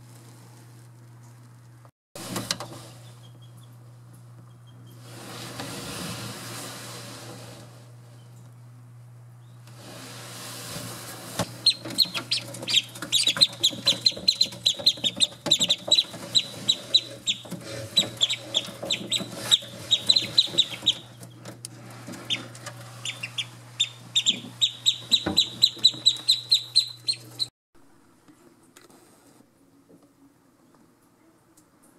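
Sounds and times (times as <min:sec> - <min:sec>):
ducklings peeping: 0:11.6 - 0:21.2, 0:22.2 - 0:27.5.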